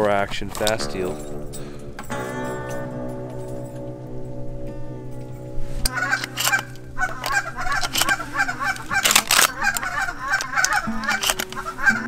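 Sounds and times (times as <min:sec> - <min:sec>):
goose-like honking calls: 0:05.9 - 0:12.0
sharp clicks: 0:05.9 - 0:12.0.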